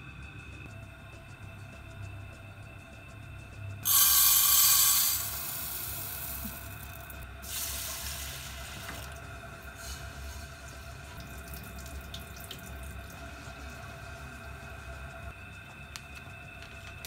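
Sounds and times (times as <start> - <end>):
rice grains pouring into pot: 3.8 - 9.1
tap water running into pot: 3.8 - 9.2, 10.8 - 13.7.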